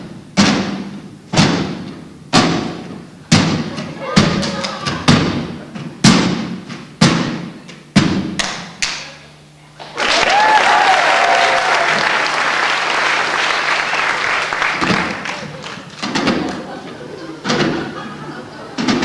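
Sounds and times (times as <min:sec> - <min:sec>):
audience applause and cheer: 0:09.8 - 0:16.8.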